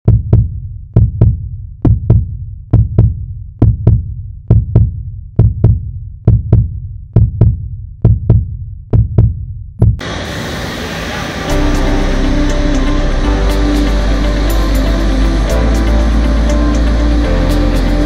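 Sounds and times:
heartbeat thumps: 0.0 - 10.0.

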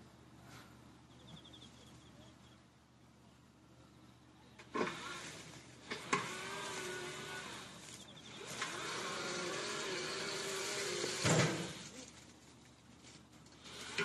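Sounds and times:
electric motor whining: 4.7 - 12.0, 13.6 - 14.0
loud clunk: 11.2 - 11.8.

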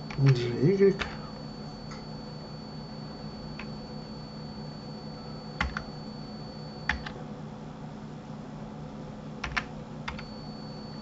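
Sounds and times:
faint high whine: 0.0 - 9.2, 10.0 - 11.0
steady low hum: 0.0 - 11.0
keyboard keystrokes clicking: 5.6 - 5.9, 6.9 - 7.2, 9.4 - 10.2.

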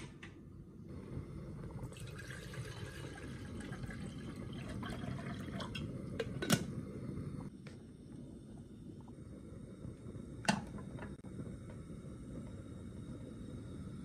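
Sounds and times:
water pouring into saucepan: 1.6 - 6.2.

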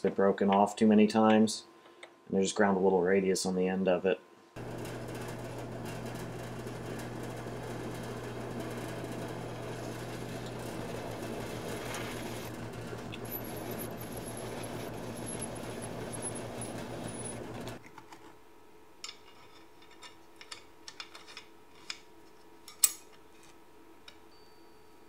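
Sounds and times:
metal lathe motor hum: 4.6 - 17.8
high whine of blade cutting steel: 8.6 - 17.8.

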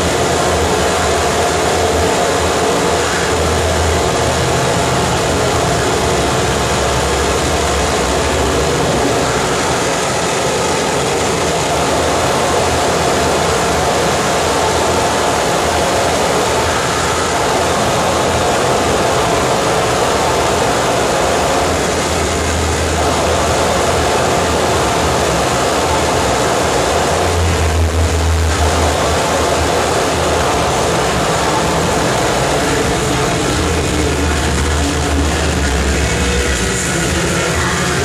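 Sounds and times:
harsh distorted noise: 0.0 - 38.0
heavy low drone: 0.0 - 38.0.

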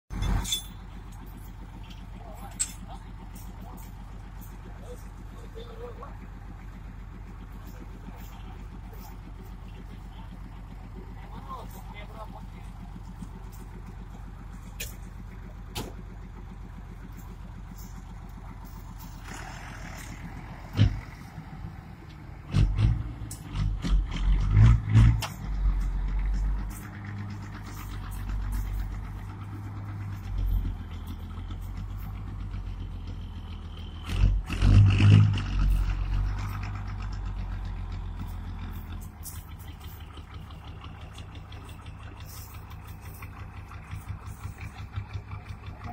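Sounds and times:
diesel engine idling: 0.1 - 45.9
low thumps and rumbles: 20.0 - 45.9.

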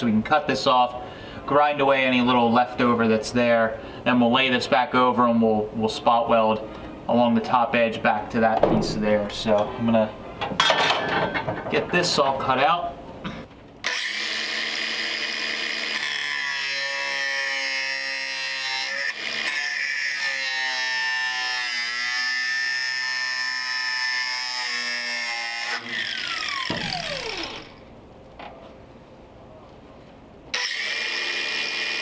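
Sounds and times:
angle grinder cutting sheet steel: 13.8 - 27.8, 30.6 - 32.0.

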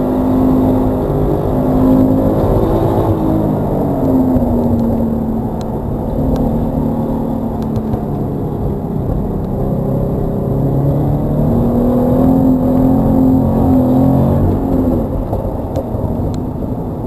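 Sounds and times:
car engine from inside cabin: 0.0 - 17.0.

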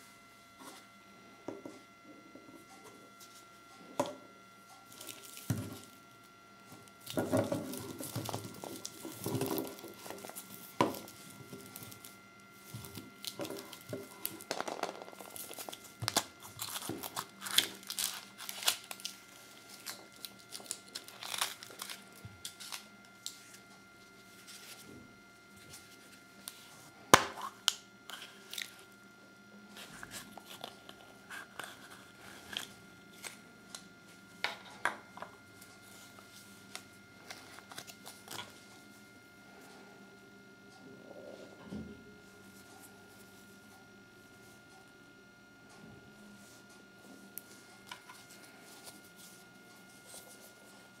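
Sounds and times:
foil wrappers crinkling: 4.9 - 6.0, 7.0 - 23.6.

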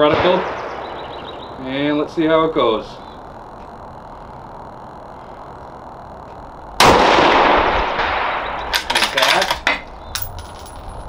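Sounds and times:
rifle shot echoing: 6.8 - 8.9.

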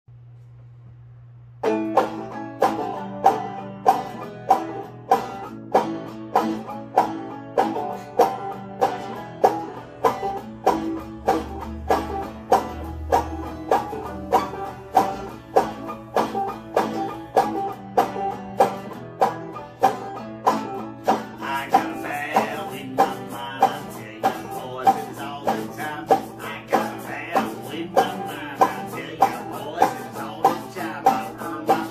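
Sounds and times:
low steady hum: 0.1 - 2.3
banjo: 1.6 - 31.9
electric guitar: 1.6 - 31.9.

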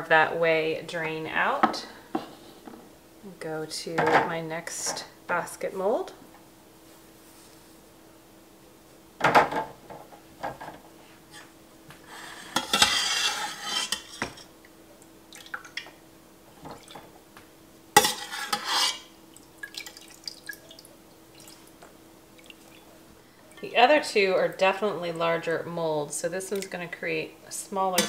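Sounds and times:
metal spoon scraping a pot: 12.2 - 14.5, 18.0 - 19.1.

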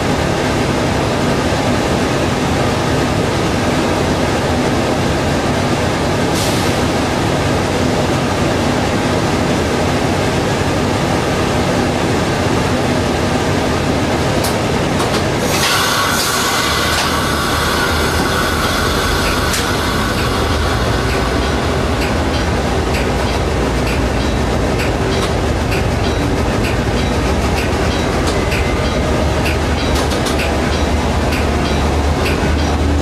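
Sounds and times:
train rumble: 0.0 - 33.0
high whine and squeal: 15.4 - 33.0.

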